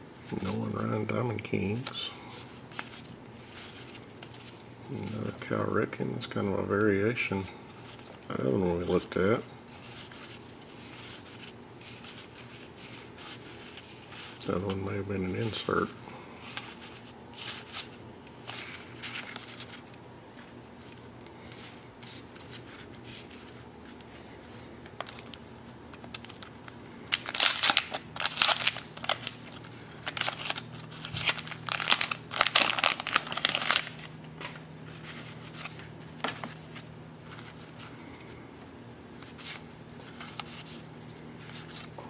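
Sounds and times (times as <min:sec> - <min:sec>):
cards rustling: 0:00.2 - 0:05.7, 0:07.3 - 0:42.0
wax paper crinkling and tearing: 0:07.8 - 0:42.0.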